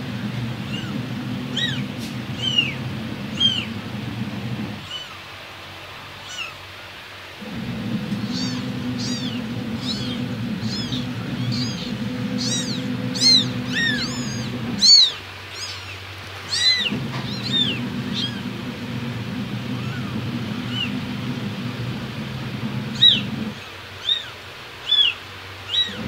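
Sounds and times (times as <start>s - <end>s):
steady low hum: 0.0s - 6.4s, 7.2s - 23.8s
kittens mewing: 0.6s - 3.7s, 4.8s - 5.2s, 6.2s - 6.6s, 8.2s - 18.6s, 19.7s - 20.9s, 23.0s - 26.0s.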